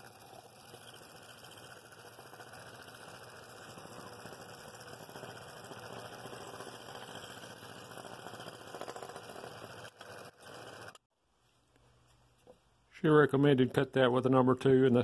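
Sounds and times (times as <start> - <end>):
scroll saw buzzing: 0.0 - 11.1.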